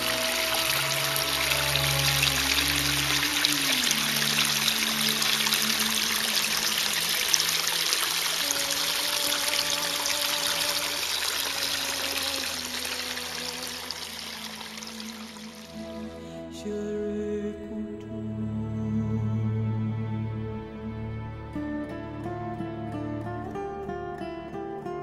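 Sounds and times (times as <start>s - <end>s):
water trickling: 0.0s - 16.0s
soft slow music: 0.0s - 25.0s.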